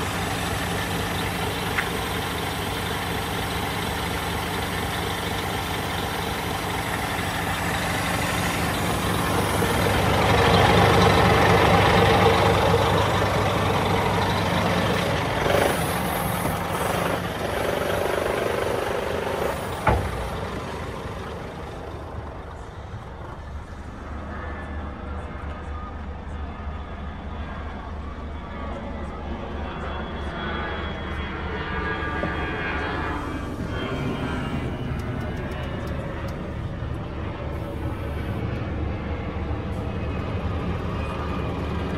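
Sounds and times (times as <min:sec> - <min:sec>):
truck diesel engine idling: 0:00.0 - 0:24.0
air hissing: 0:15.5 - 0:17.8.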